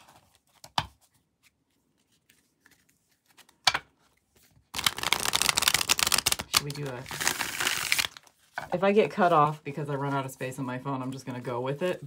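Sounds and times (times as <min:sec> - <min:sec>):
cards being shuffled: 0:00.0 - 0:08.7.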